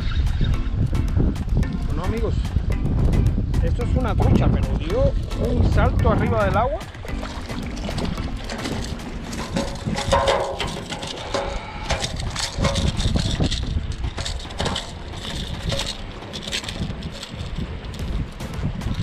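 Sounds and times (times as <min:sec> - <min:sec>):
wind rumbling on microphone: 0:00.0 - 0:19.0
knocks and rattles on wooden dock: 0:00.1 - 0:19.0
lapping water: 0:06.8 - 0:17.6.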